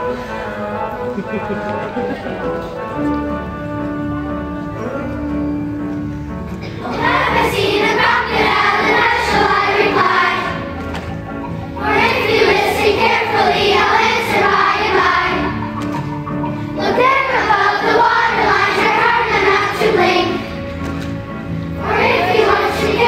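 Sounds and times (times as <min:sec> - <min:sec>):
instrumental accompaniment: 0:00.0 - 0:23.0
children's chorus singing: 0:06.6 - 0:23.0.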